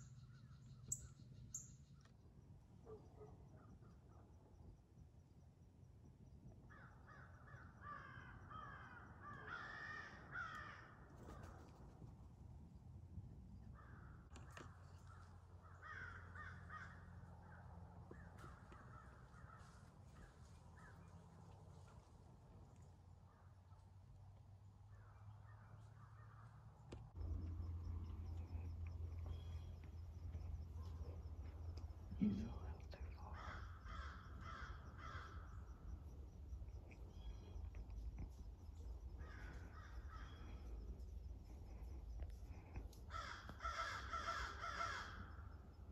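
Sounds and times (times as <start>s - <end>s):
birds: 0.0s - 4.6s, 6.6s - 12.2s, 13.5s - 22.1s, 24.6s - 45.9s
insects: 0.0s - 45.9s
crow cawing: 6.7s - 11.4s, 13.8s - 14.1s, 15.1s - 17.6s, 18.2s - 21.0s, 33.3s - 35.9s, 39.2s - 40.8s, 42.5s - 45.5s
low steady hum: 26.7s - 45.9s.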